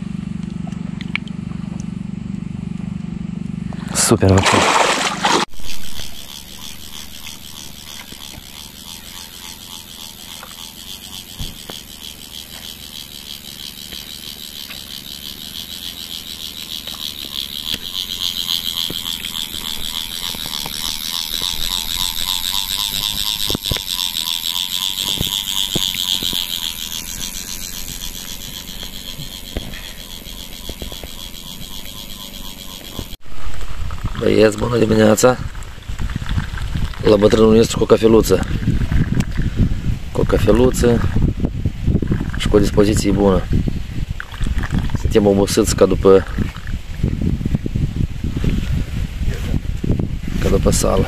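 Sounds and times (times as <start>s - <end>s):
high-pitched pulsing chorus: 4.5s - 33.2s.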